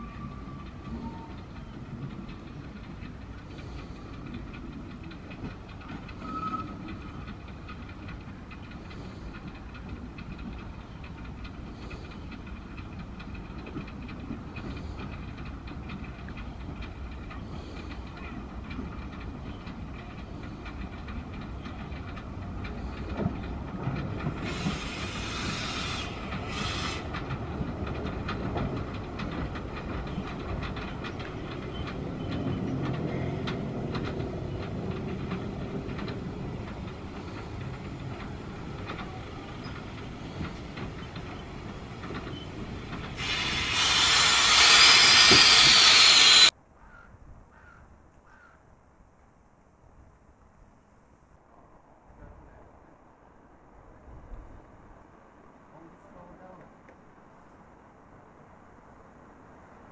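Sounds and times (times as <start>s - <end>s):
train wheels clicking on rails: 0.0s - 46.6s
steam hissing: 24.4s - 27.2s, 43.1s - 46.5s.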